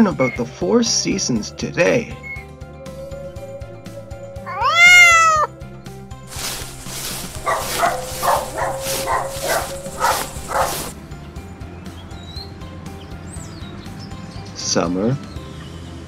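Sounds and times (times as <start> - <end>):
light background music: 0.0 - 16.0
cartoon cat meow: 4.4 - 5.5
small dog yapping: 4.5 - 5.5, 7.0 - 10.9.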